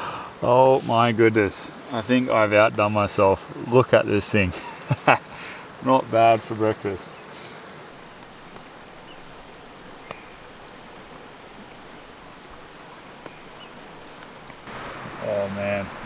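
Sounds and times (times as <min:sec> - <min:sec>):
outdoor background hiss: 0:00.0 - 0:16.0
small bird chirping: 0:07.0 - 0:14.7.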